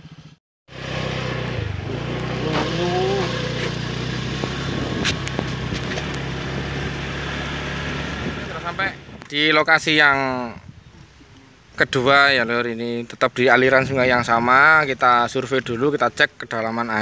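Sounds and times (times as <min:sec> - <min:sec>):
motor scooter engine running: 0:00.0 - 0:09.2.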